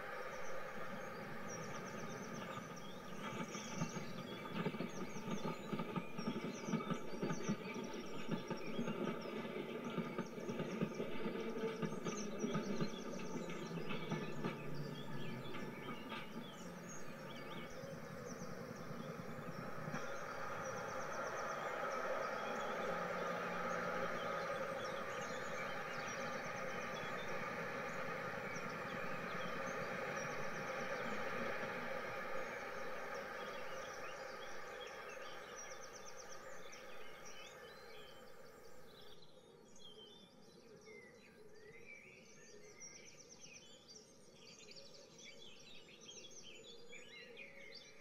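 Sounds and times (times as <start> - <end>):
train rumbling: 0.0 - 39.0
train wheels clattering over rail joints: 0.8 - 33.6.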